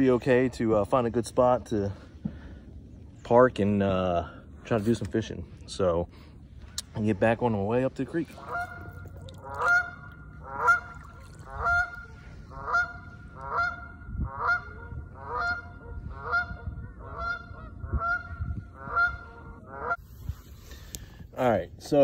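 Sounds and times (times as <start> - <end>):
geese honking: 8.3 - 20.0.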